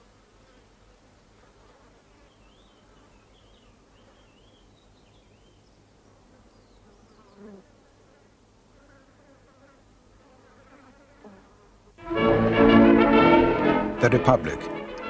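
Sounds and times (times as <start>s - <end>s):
flies buzzing: 6.0s - 15.0s.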